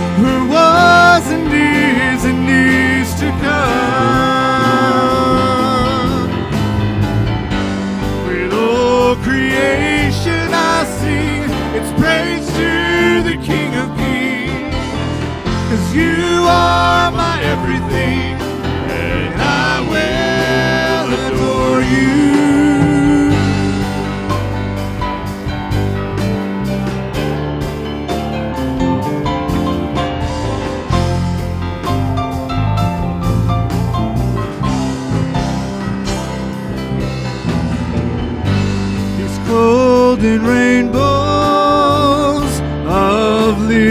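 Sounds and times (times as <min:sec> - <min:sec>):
person singing: 0:00.0 - 0:06.7, 0:08.1 - 0:24.6, 0:39.1 - 0:43.9
acoustic guitar: 0:00.0 - 0:43.9
band accompaniment: 0:00.0 - 0:43.9
singers with vibrato: 0:15.7 - 0:24.3.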